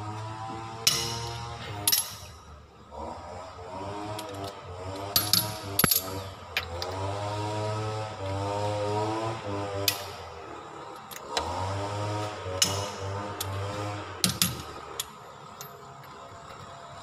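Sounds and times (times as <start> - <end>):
socket wrench clinking on wheel nuts: 0.8 - 2.3, 5.0 - 6.8.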